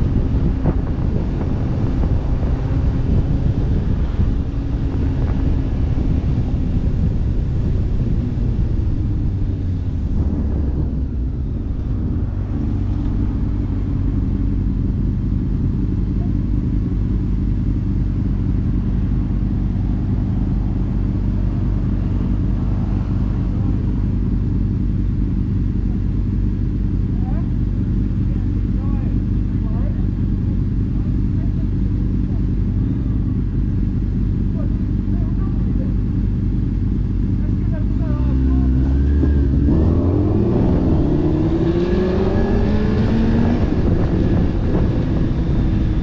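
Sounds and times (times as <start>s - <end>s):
wind noise while riding: 0.0s - 11.3s, 39.2s - 46.0s
motorcycle engine running: 0.0s - 46.0s.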